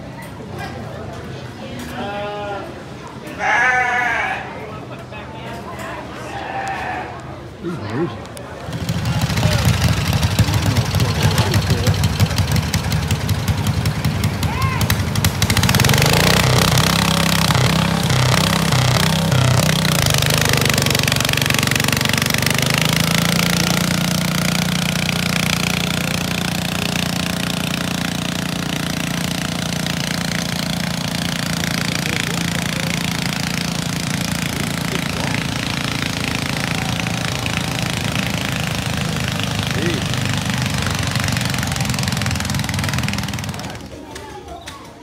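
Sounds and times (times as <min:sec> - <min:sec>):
tractor engine running hard: 0:08.6 - 0:44.0.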